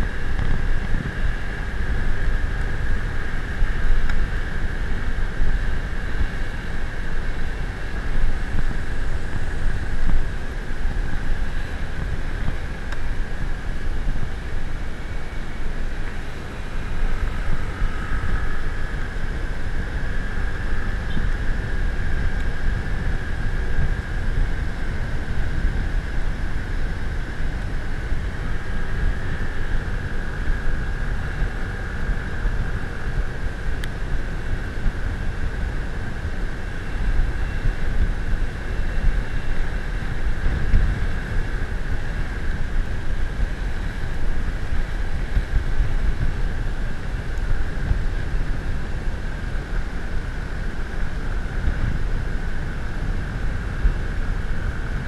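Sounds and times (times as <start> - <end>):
constant high hum: 0.0 - 55.0
engine and road drone: 0.0 - 55.0
wind buffeting microphone: 0.0 - 55.0.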